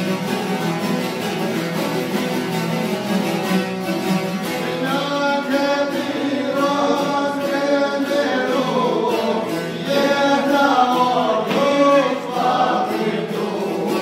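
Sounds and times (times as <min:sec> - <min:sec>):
plucked lutes: 0:00.0 - 0:14.0
men singing together: 0:04.6 - 0:14.0.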